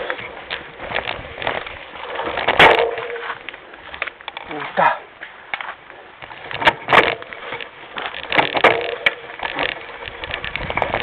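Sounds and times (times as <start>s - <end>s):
mountain bike rattling: 0.0s - 11.0s.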